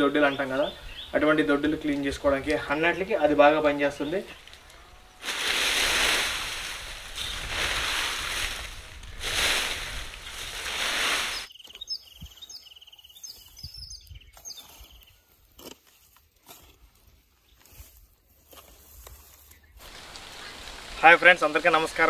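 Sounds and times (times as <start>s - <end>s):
birds chirping: 0.0s - 9.1s, 10.1s - 15.4s, 19.4s - 22.0s
rake sweeping dry leaves: 4.3s - 11.5s, 14.4s - 22.0s
faint clicks: 4.4s - 4.8s.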